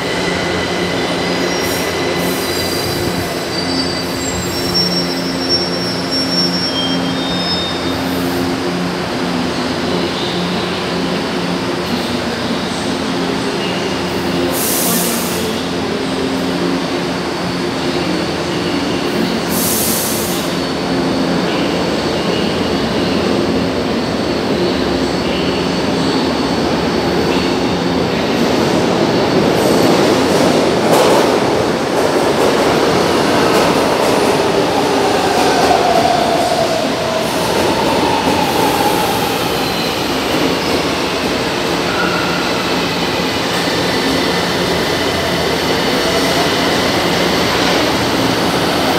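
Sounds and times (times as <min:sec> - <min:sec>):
train wheel squeal: 0:00.0 - 0:08.5, 0:33.4 - 0:48.9
falling whine of train: 0:00.0 - 0:48.9
subway train rumble: 0:00.0 - 0:48.9.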